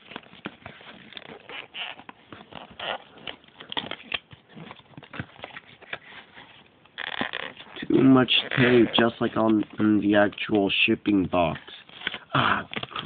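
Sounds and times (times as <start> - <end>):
packing tape peeling: 0.0 - 9.2
box handling crackles and rustles: 0.0 - 10.6, 11.2 - 13.0.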